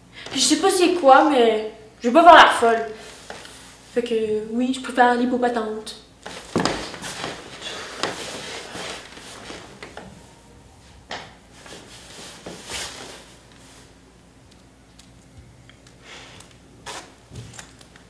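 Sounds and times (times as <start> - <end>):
cotton hoodie rustling: 6.2 - 10.0, 11.5 - 14.0.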